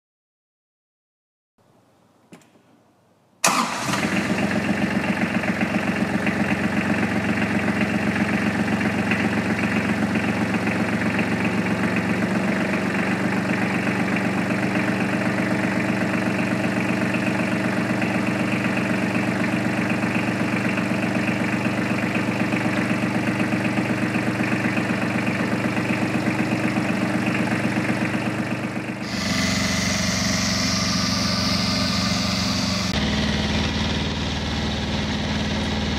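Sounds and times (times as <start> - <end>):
tractor engine running: 3.4 - 35.9
rotary mower cutting grass: 29.0 - 34.0.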